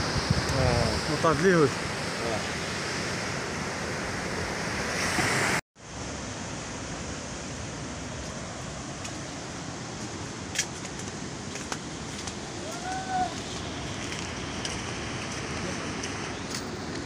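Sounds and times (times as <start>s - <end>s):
wind on microphone: 0.0s - 1.2s
sea surf breaking: 0.0s - 5.6s.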